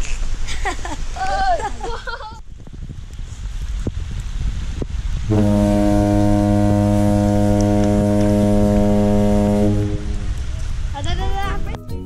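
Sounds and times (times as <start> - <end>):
deep ship's horn blast: 5.3 - 10.5.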